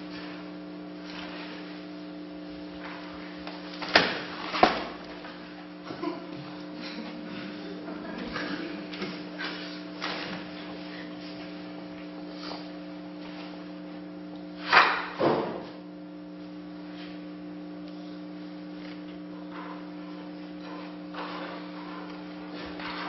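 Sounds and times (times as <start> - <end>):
electrical hum: 0.0 - 23.0.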